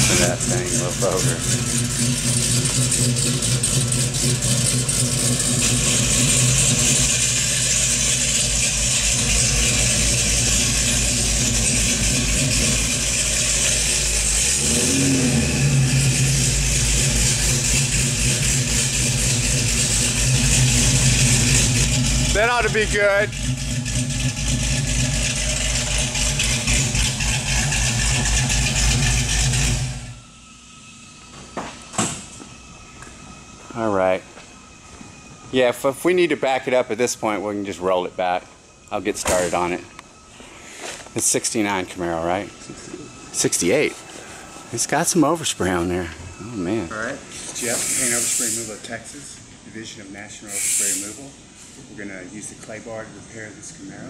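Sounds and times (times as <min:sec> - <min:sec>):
car engine running at low revs: 0:00.0 - 0:33.8.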